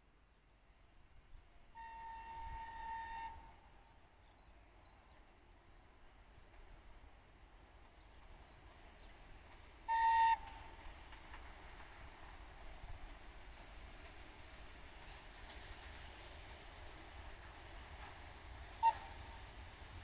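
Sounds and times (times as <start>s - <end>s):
low rumble of train: 0.0s - 20.0s
locomotive whistle: 1.8s - 3.6s, 9.9s - 10.6s, 18.8s - 19.5s.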